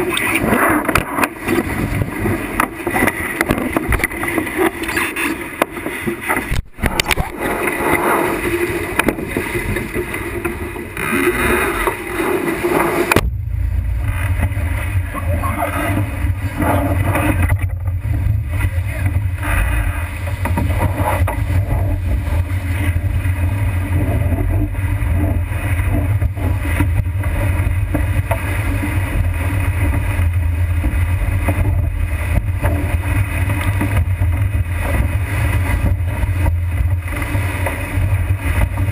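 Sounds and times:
water and spray rushing: 0:00.0 - 0:38.9
wind buffeting microphone: 0:13.0 - 0:38.9.

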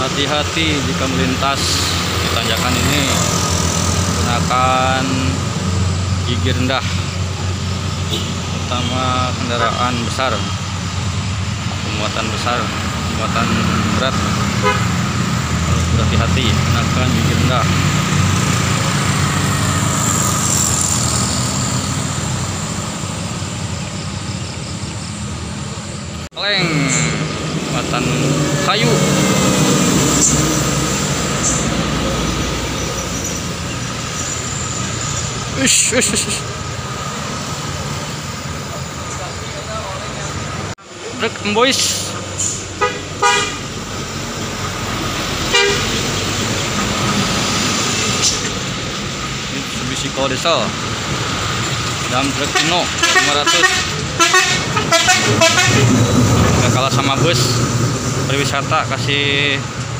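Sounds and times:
motorcycle engines climbing: 0:00.0 - 0:59.9
short horn toot: 0:45.5 - 0:45.9.

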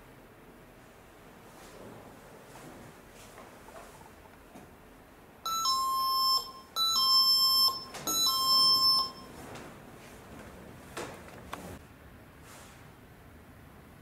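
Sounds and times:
electronic two-tone beep: 0:05.5 - 0:09.3.

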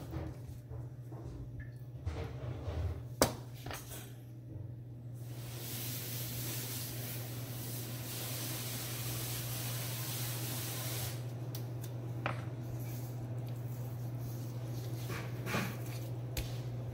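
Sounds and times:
steady hiss: 0:05.2 - 0:11.3.

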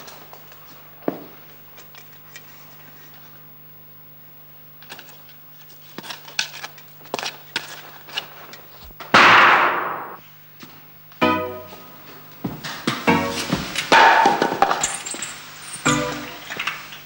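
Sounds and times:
loud gunshot: 0:09.1 - 0:10.2.

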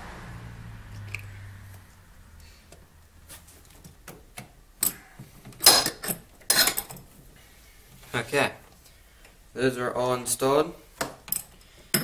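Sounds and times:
sharp metal clanks: 0:05.6 - 0:07.0.

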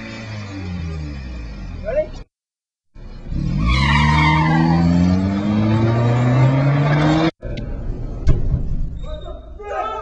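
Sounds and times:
car engine revving: 0:03.1 - 0:07.4.

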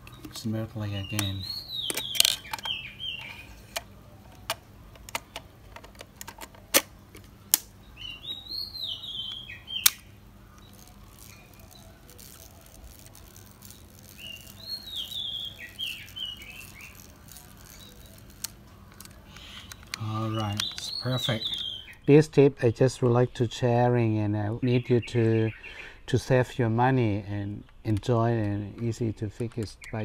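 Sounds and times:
bird chirping: 0:00.0 - 0:05.5, 0:07.4 - 0:22.3
film magazine mechanism clicking: 0:01.2 - 0:07.7, 0:09.8 - 0:11.4, 0:12.2 - 0:20.9.

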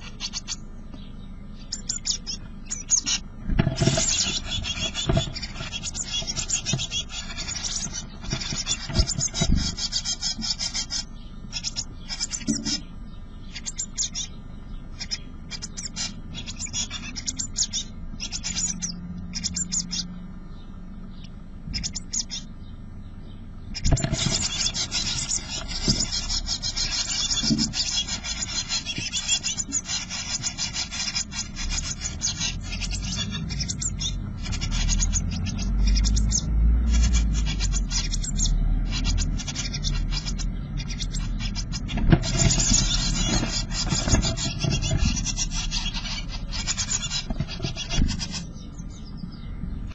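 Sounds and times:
bird nestlings begging calls: 0:00.0 - 0:49.9
scratching and rustling in wooden box: 0:03.1 - 0:11.0, 0:23.8 - 0:48.7.

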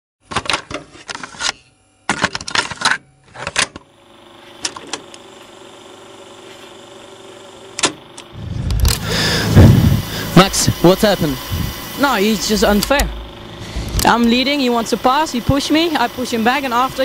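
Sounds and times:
rapid sharp mechanical clicks: 0:07.6 - 0:17.0
low steady hum: 0:08.1 - 0:17.0.

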